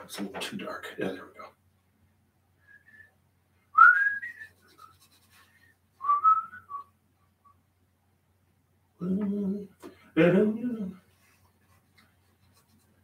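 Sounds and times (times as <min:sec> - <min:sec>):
man whistling softly: 0:02.6 - 0:05.0, 0:06.0 - 0:07.6.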